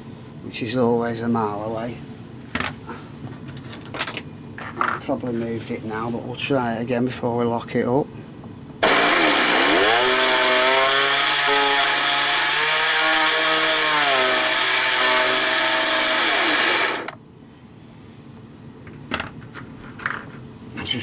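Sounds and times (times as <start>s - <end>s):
electric motor whine: 8.8s - 17.2s.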